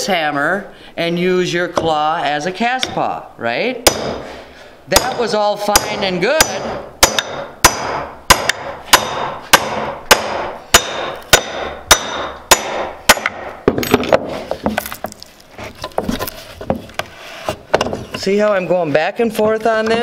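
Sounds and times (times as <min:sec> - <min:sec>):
hammer striking hammer with metallic ring: 0:05.8 - 0:14.0.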